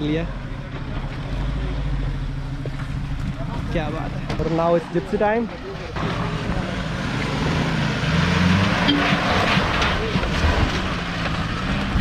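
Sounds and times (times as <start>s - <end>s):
car engine under load: 0.0s - 12.0s.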